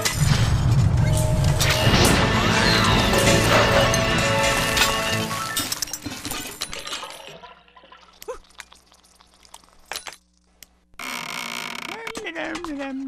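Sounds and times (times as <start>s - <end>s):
debris clattering: 0.0s - 7.4s
scattered clicks and taps: 11.9s - 13.0s.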